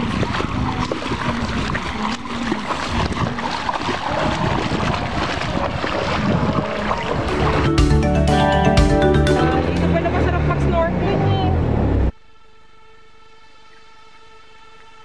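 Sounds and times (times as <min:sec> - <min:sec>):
wind on microphone: 0:00.0 - 0:07.8
feet splashing through seawater: 0:00.0 - 0:08.1.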